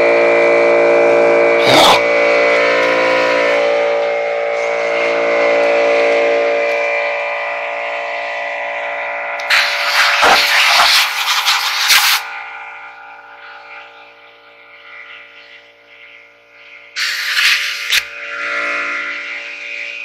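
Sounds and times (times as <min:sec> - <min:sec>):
air compressor humming: 0:00.0 - 0:20.0
compressed air blasts: 0:09.4 - 0:12.3, 0:16.6 - 0:18.2.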